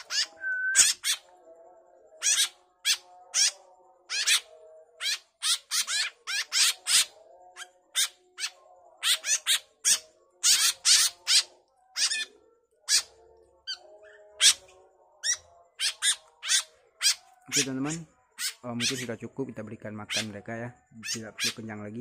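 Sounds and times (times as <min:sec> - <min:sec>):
fledgling birds begging calls: 0:00.0 - 0:01.3, 0:02.2 - 0:04.4, 0:05.0 - 0:07.1, 0:08.0 - 0:13.1, 0:13.7 - 0:19.1.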